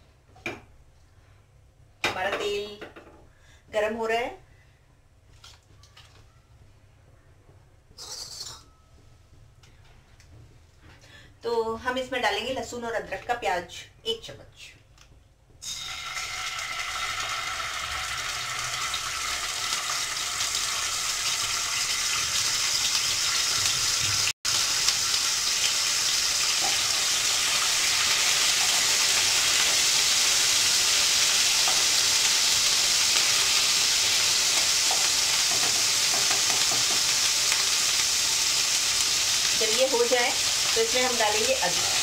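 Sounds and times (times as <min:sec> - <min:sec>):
paste sizzling in hot oil: 0:15.6 - 0:42.0.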